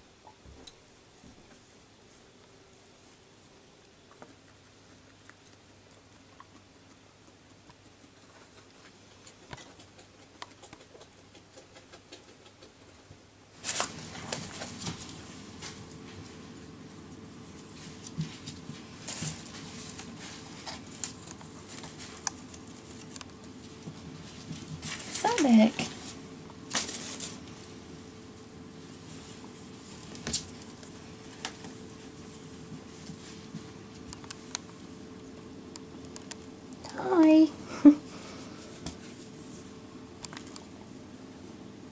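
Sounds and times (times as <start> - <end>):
faint steady hum: 0.0 - 41.9
guinea pig nibbling cardboard: 1.4 - 37.4
rabbit brushing against camera: 17.4 - 35.0, 38.4 - 39.8.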